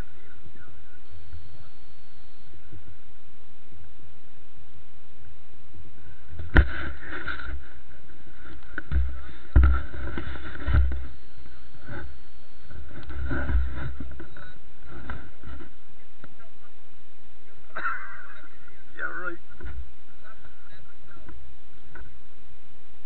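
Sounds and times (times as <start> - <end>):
jet ski low rumble: 0.0 - 22.3
sharp knocks: 8.8 - 11.0.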